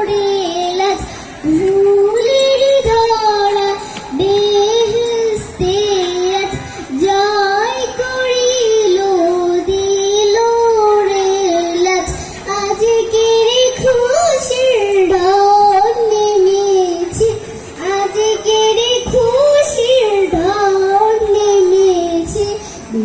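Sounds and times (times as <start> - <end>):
girl singing into microphone: 0.0 - 23.0.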